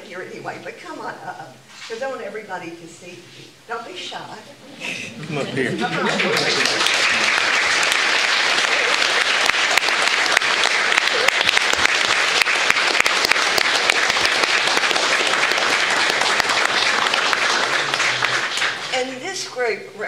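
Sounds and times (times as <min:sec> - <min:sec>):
audience applauding: 0:05.2 - 0:19.1.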